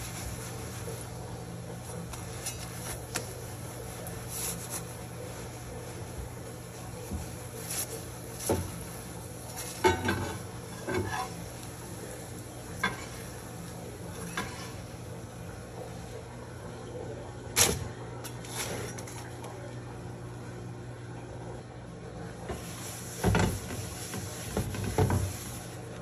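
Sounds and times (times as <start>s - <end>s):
metal spatula scraping frying pan: 9.7s - 11.6s.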